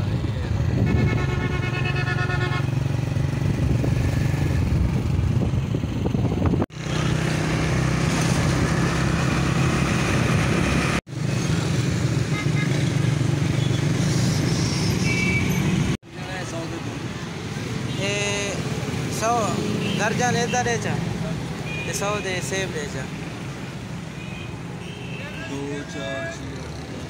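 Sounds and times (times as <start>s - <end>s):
vehicle engine hum: 0.0s - 16.0s
road noise: 0.0s - 27.0s.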